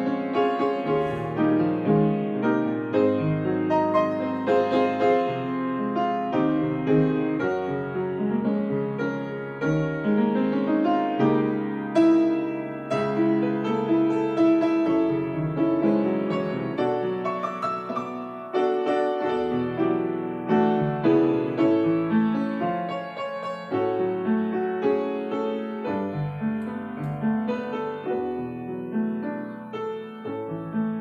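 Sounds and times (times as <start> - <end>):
grand piano playing: 0.0 - 31.0.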